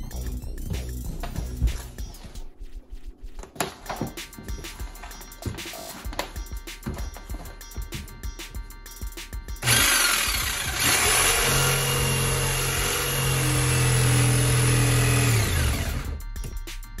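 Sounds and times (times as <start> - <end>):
electric saw cutting wood: 9.6 - 16.2.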